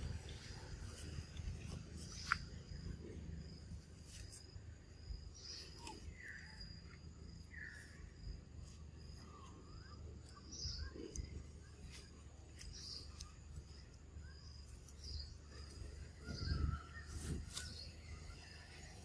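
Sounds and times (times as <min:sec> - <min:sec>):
birds chirping: 0:00.0 - 0:19.0
high insect drone: 0:00.0 - 0:19.0.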